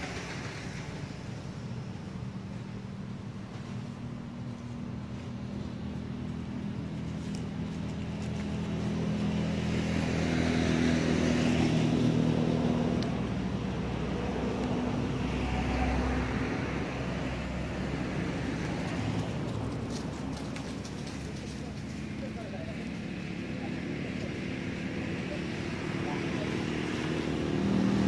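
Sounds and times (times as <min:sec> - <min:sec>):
vehicle engine passing: 0:00.0 - 0:28.0.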